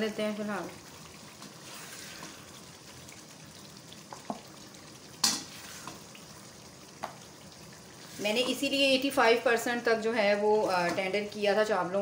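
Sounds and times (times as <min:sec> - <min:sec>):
food sizzling in a wok: 0:00.0 - 0:11.9
spatula stirring and knocking: 0:05.1 - 0:06.1, 0:08.0 - 0:08.8.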